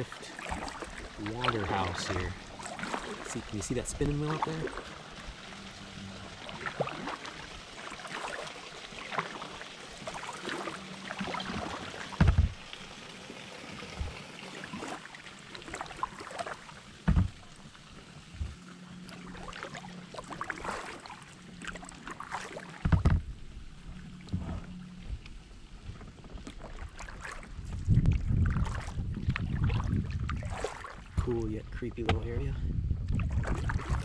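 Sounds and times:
paddle splashing in water: 0.0 - 31.3, 33.1 - 34.0
low thumps: 12.2 - 12.7, 17.0 - 17.4.

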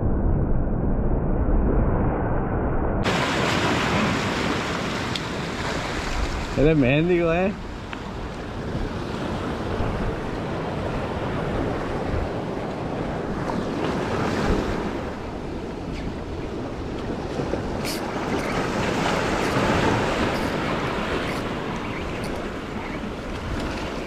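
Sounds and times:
sea surf breaking on rocks: 3.0 - 24.0
wind buffeting microphone: 7.4 - 24.0.

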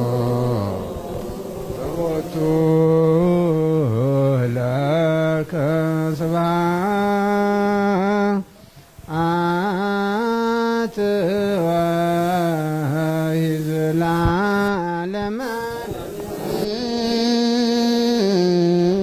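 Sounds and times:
man chanting a prayer: 0.0 - 8.5, 9.1 - 19.0.

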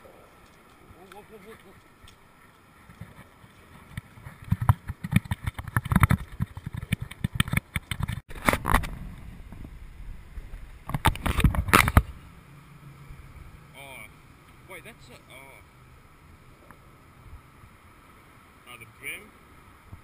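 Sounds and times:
camera handling knocks and rubs: 2.9 - 8.9.

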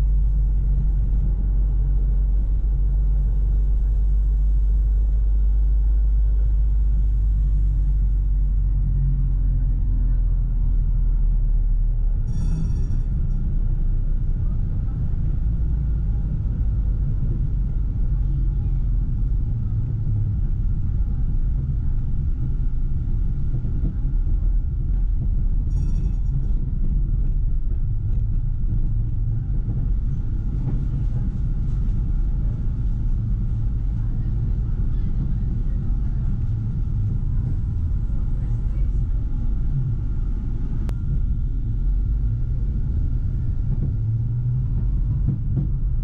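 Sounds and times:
tram wheels rumbling on rails: 0.0 - 46.0
tram bell ringing: 12.3 - 13.9, 25.6 - 27.4.

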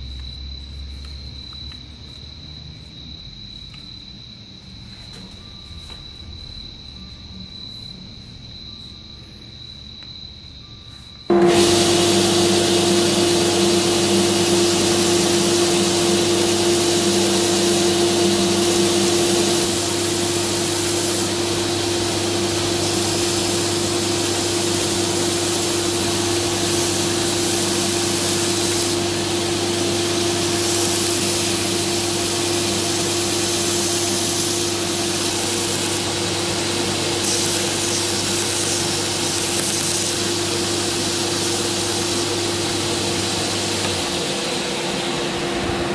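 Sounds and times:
belt grinder motor hum: 11.3 - 44.2
wood sanding hiss: 11.3 - 45.9.

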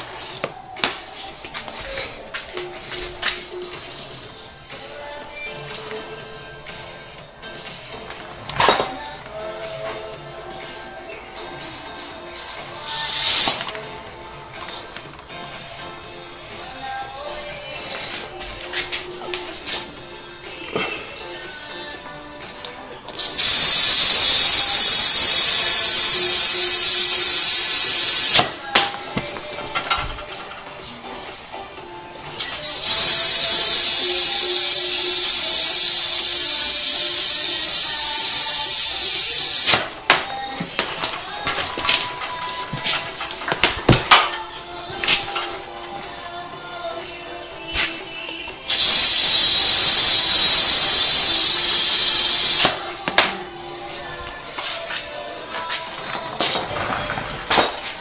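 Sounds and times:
compressed air hissing: 12.8 - 13.8, 23.2 - 28.6, 32.4 - 39.9, 48.7 - 52.8.

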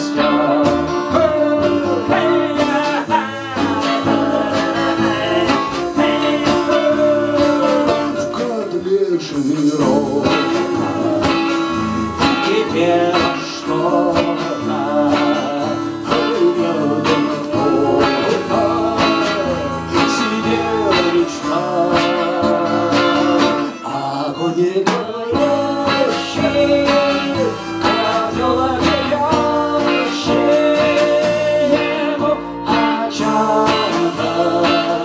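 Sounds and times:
bass guitar: 0.0 - 35.0
strummed acoustic guitar: 0.0 - 35.0
violin: 18.0 - 27.1.

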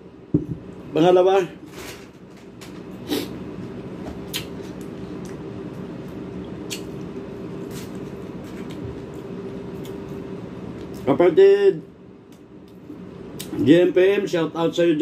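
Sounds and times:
steady low hum: 0.0 - 15.0
man chewing wetly: 4.3 - 10.2.

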